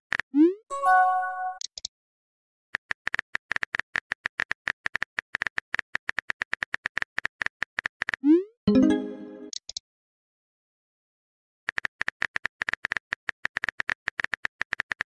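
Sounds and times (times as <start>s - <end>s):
message chime: 0.7s - 1.6s, 8.7s - 9.5s.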